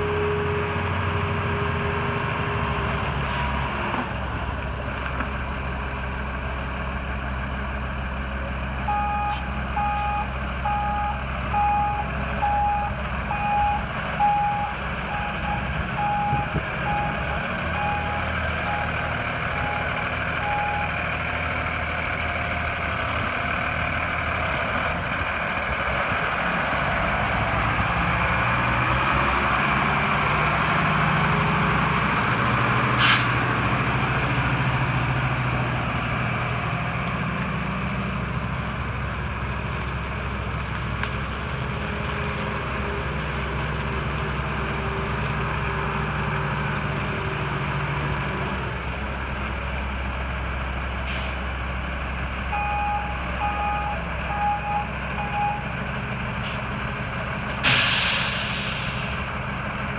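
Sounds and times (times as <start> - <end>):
diesel truck engine: 0.0 - 59.9
backup alarm beeping: 8.9 - 17.2, 52.5 - 55.6.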